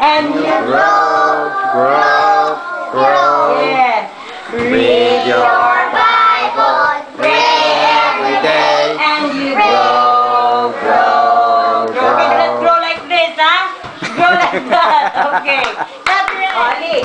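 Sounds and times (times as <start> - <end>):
children singing in unison: 0.0 - 12.7.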